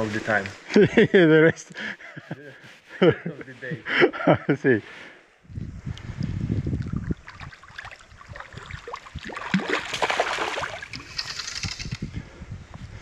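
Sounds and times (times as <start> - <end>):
stream gurgling: 6.2 - 11.3
river water splashing: 7.1 - 11.4.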